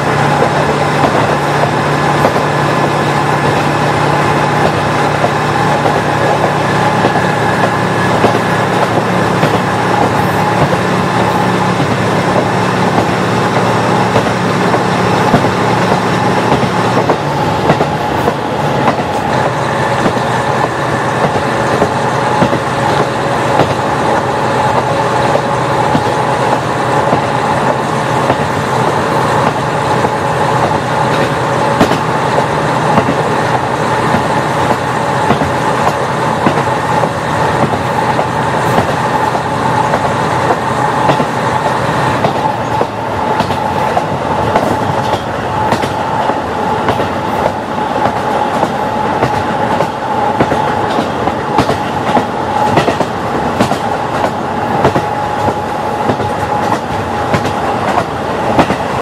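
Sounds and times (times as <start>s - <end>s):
wheels clicking over rail joints: 29.4s - 59.0s.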